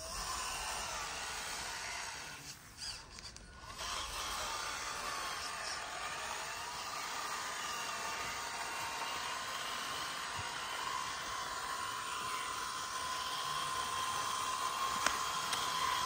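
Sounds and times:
small motor and gears whining: 0.0 - 16.0.

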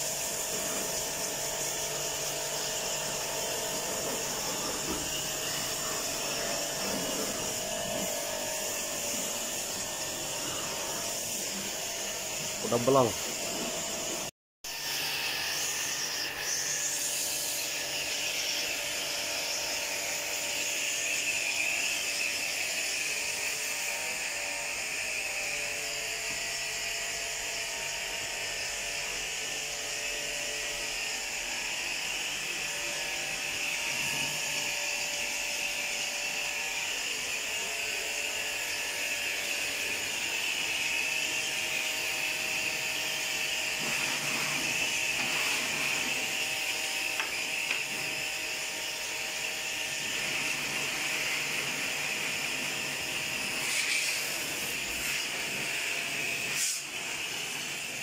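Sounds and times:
water jet hissing: 0.0 - 23.8, 38.2 - 48.6, 49.4 - 58.0
pressure washer motor humming: 0.0 - 58.0.

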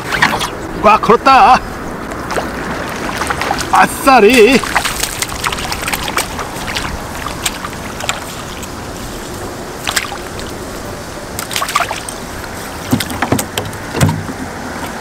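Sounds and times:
water splashing and trickling: 0.0 - 15.0
sharp knocks and clicks: 12.9 - 14.5.

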